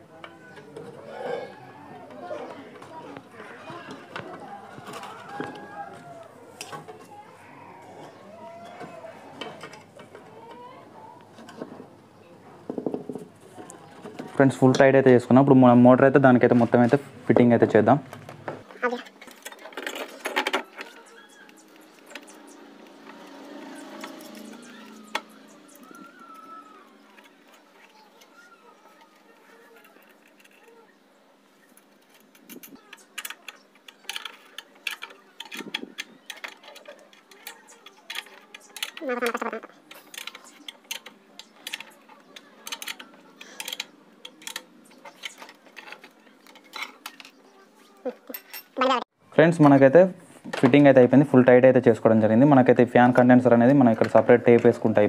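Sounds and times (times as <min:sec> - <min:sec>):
parts rattling and scraping: 0:00.0 - 0:10.6, 0:16.4 - 0:48.8.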